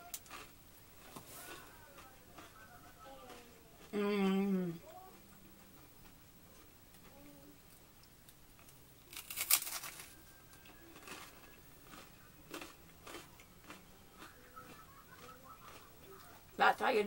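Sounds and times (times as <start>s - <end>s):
crispbread crunching: 0.0s - 3.9s, 8.5s - 16.6s
chewing crunches: 0.0s - 4.0s, 8.6s - 16.6s.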